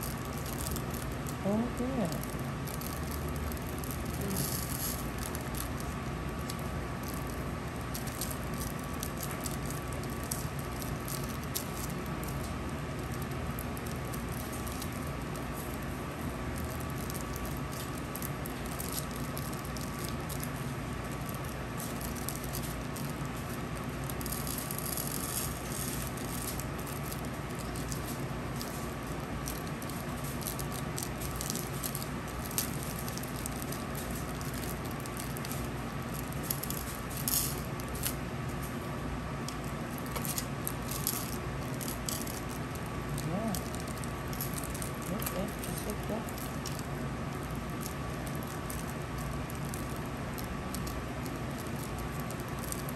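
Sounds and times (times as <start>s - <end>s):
background hum: 0.0s - 52.9s.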